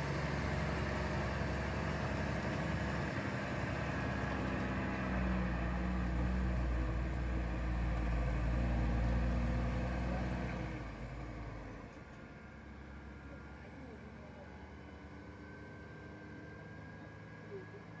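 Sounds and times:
truck diesel engine passing: 0.0 - 11.9.

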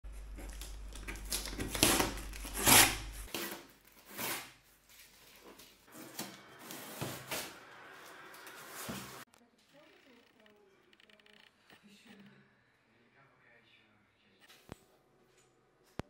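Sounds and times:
cardboard rubbing: 0.1 - 4.4
packing tape ripping: 0.3 - 4.7.

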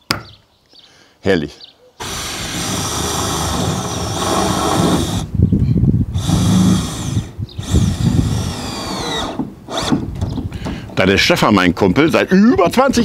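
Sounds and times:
cordless drill driving screws into metal: 2.0 - 5.3, 6.2 - 11.0.

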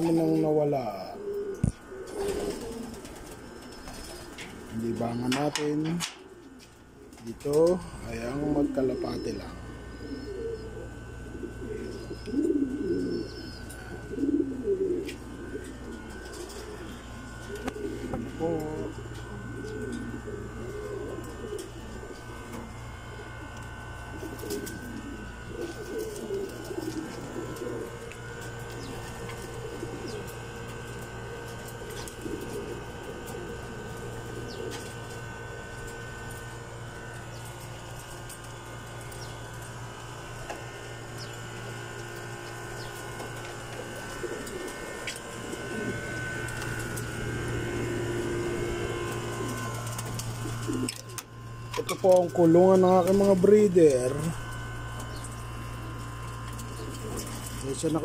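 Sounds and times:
pigeons cooing: 0.0 - 58.0
steady low hum: 0.0 - 58.0.

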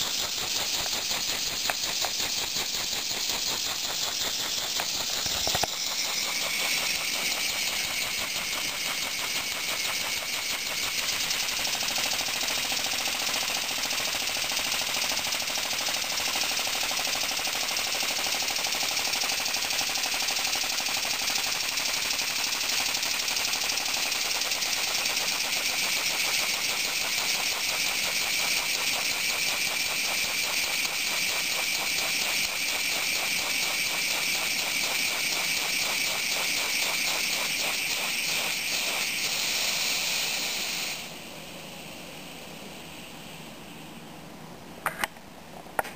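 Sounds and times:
mechanism clatter: 0.0 - 39.3
constant steam hiss: 0.0 - 45.9.

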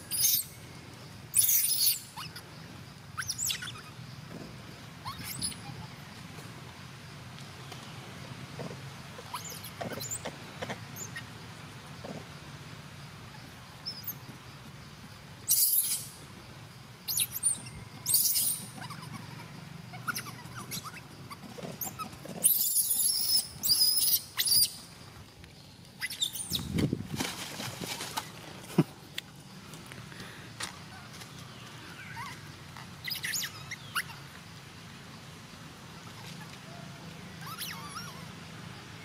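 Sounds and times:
macaques squealing: 0.1 - 0.6, 1.3 - 2.4, 3.2 - 4.0, 5.0 - 6.0, 9.2 - 10.3, 15.5 - 16.2, 17.1 - 24.8, 26.0 - 26.7, 31.9 - 34.3, 36.0 - 38.4.

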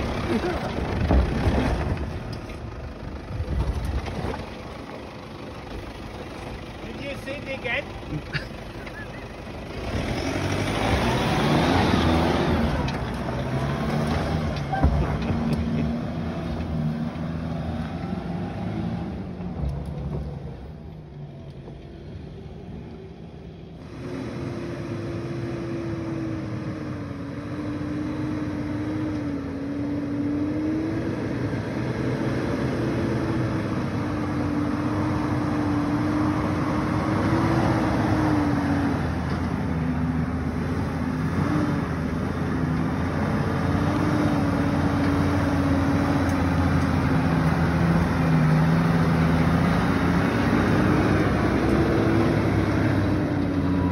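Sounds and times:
vehicle engine climbing dirt track: 0.0 - 53.9
vehicle engine labouring uphill: 0.0 - 53.9.

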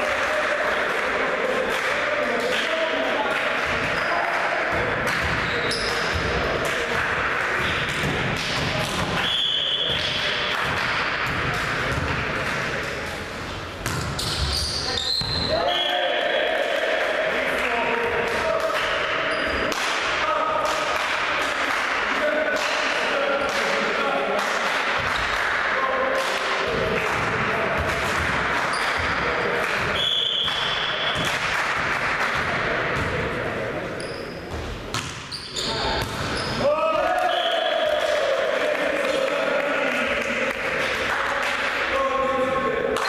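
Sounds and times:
voices in echoing hall: 0.0 - 43.0
referee's whistle: 9.2 - 10.1, 14.5 - 16.1, 30.0 - 31.2, 37.2 - 38.0.

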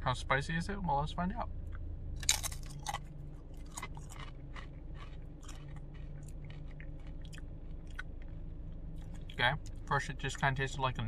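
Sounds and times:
low steady hum: 0.0 - 11.0
chewing crunchy chip: 1.7 - 9.9.

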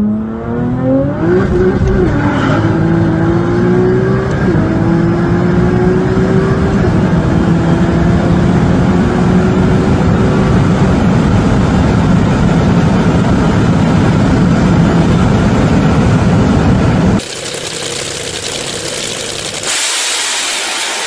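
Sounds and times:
sports car engine at full throttle: 0.0 - 21.0
wind and road noise: 0.0 - 21.0.

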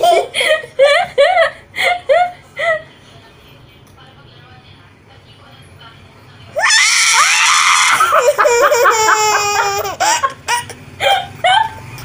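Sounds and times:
woman squealing: 6.6 - 9.7
toddler shrieking and laughing: 6.6 - 10.7.

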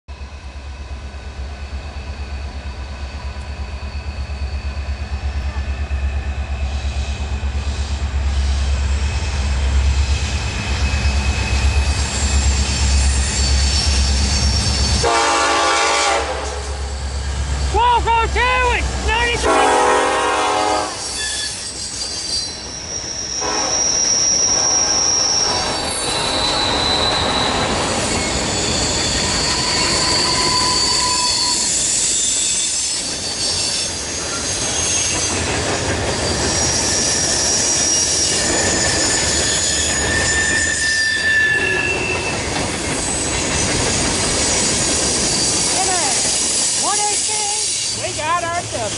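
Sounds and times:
train rumbling past: 0.1 - 48.9
steel wheels squealing: 1.2 - 15.1, 16.7 - 18.0, 20.9 - 48.9
locomotive horn: 15.0 - 16.9, 19.3 - 21.6, 23.4 - 25.8.

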